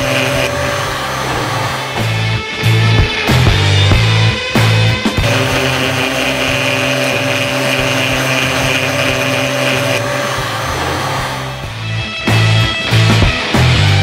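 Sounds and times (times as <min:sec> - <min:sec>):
rotary tool motor whine: 0:00.0 - 0:02.2, 0:05.2 - 0:11.8.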